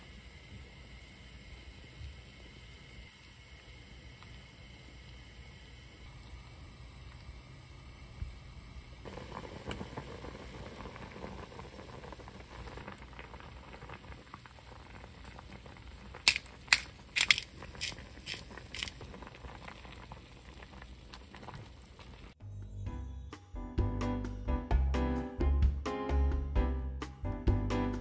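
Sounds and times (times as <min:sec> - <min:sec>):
soup boiling and bubbling: 0:00.0 - 0:22.4.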